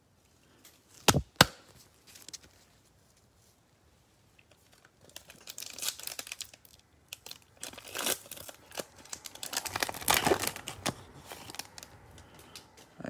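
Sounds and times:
foil wrapper crinkling and tearing: 4.4 - 12.6.

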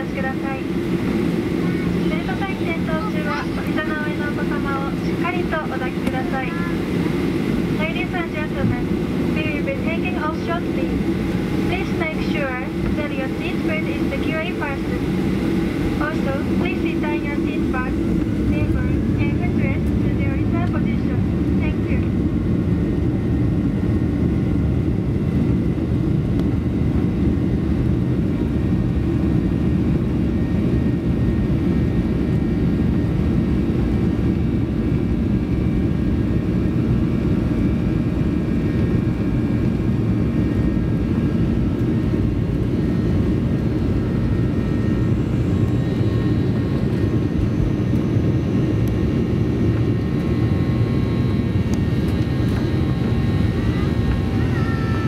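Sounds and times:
jet engines deep rumble: 0.0 - 55.0.

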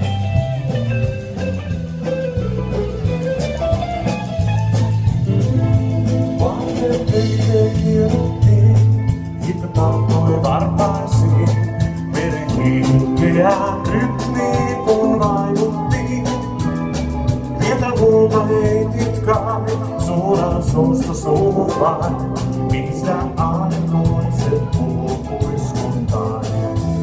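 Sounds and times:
bass line: 0.0 - 27.0
drum beat: 0.0 - 27.0
person singing: 5.4 - 27.0.

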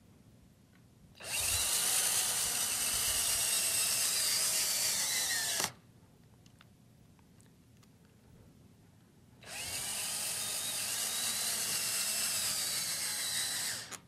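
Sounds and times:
cordless drill whining: 1.2 - 5.8, 9.4 - 14.0.

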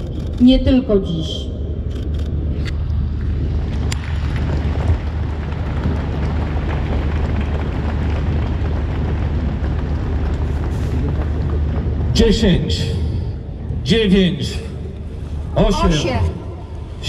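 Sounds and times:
low rumble: 0.0 - 17.0
crowd applauding and cheering: 3.6 - 12.5.

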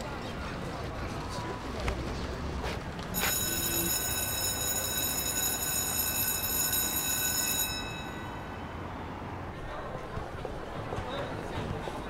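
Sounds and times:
electric bell ringing: 3.2 - 8.6.

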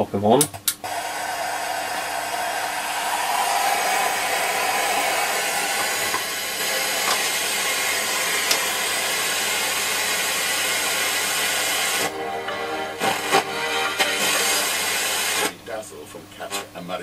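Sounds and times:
radio static hiss: 13.0 - 17.0.

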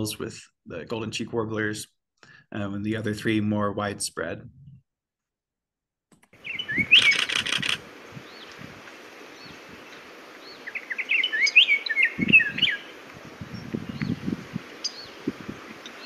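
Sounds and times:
oriole whistled song: 6.4 - 7.2, 11.0 - 12.8
faint steady hiss: 7.8 - 16.0.

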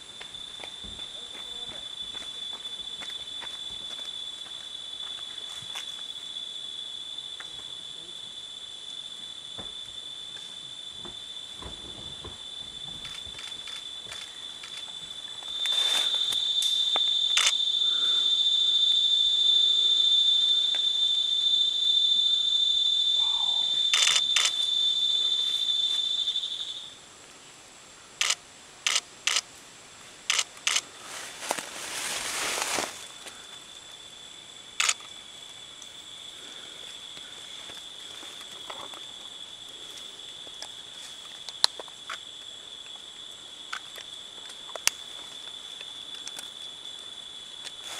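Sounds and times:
high-pitched insect drone: 0.2 - 27.0, 31.9 - 40.4
leaves rustling: 11.8 - 18.1, 30.0 - 33.9.

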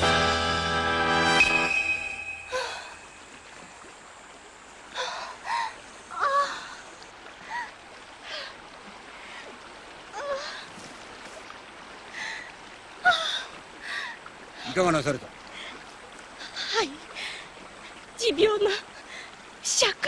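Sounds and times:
faint steady hiss: 0.0 - 20.0
woman moaning and gasping: 2.5 - 3.0.

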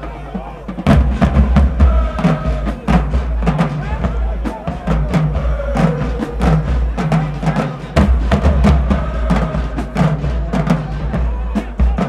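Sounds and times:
drumline hits: 0.0 - 12.0
marching band playing: 0.0 - 12.0.

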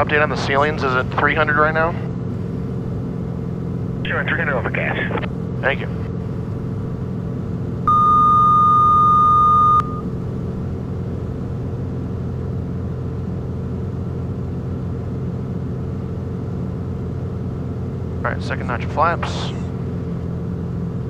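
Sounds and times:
aircraft piston engine droning: 0.0 - 8.4, 9.8 - 21.0
electronic alert tone: 7.9 - 10.0.

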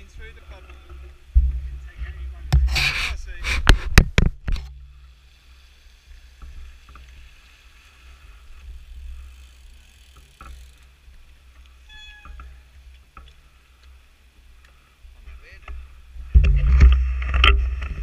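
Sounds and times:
bike clicks: 5.8 - 15.0
bike brake squeal: 11.8 - 12.7.

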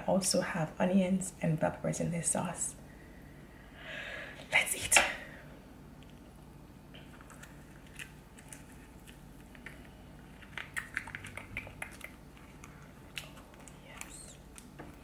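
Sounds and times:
wet eating clicks and smacks: 7.1 - 15.0.

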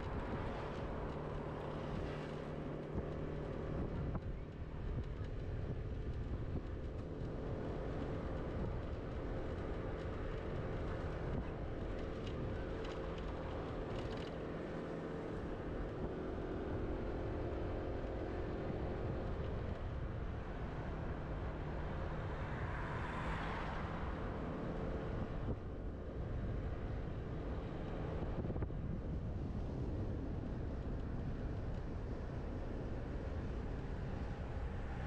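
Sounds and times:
road and wind rumble: 0.0 - 35.0.

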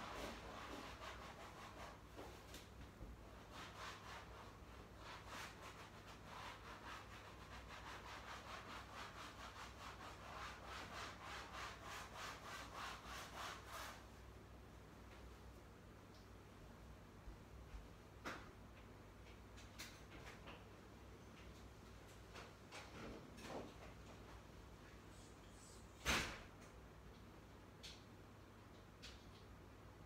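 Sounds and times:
quick rubbing strokes: 3.4 - 14.1.

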